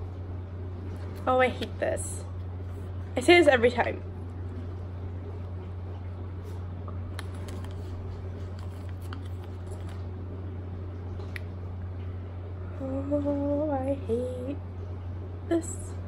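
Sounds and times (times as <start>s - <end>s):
steady low hum: 0.0s - 16.0s
face mask squishing and crinkling: 7.0s - 10.2s.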